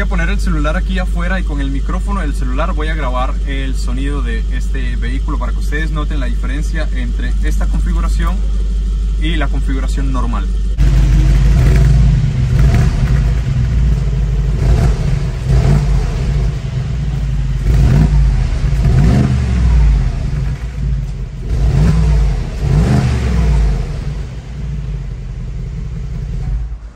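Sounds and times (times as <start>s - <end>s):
car engine revving from idle: 0.0s - 26.9s.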